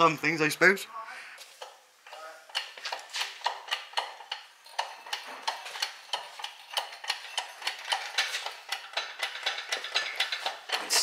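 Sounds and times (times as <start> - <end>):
sharp regular ticking: 1.6 - 11.0.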